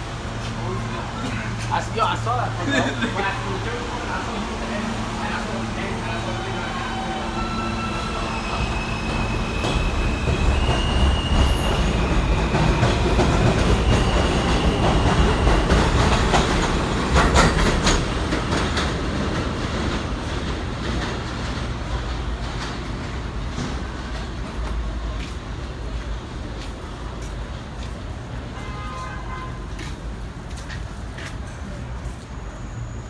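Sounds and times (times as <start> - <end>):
train wheels clattering over rails: 9.0 - 28.4.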